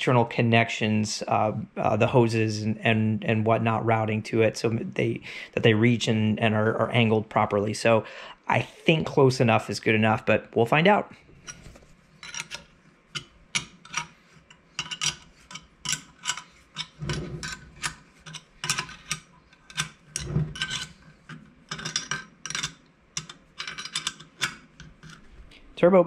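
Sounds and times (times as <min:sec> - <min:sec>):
wrench clicking on bolts: 0:12.2 - 0:25.2.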